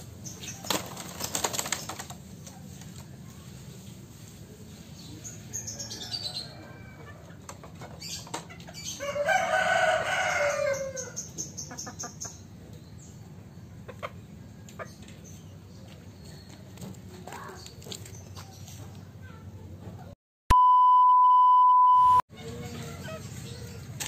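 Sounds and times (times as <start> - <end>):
wings flapping: 0.4 - 3.1.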